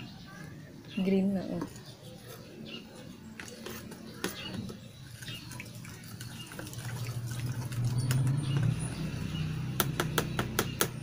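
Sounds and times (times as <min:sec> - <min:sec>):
brush stirring liquid in tub: 0:01.7 - 0:09.1.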